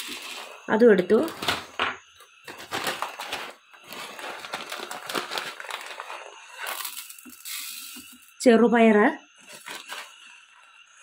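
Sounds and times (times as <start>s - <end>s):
plastic bag crinkling: 2.5s - 8.2s, 9.4s - 10.2s.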